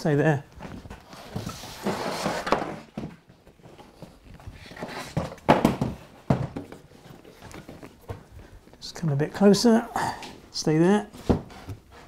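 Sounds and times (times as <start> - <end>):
wooden board scraping: 0.9 - 3.0.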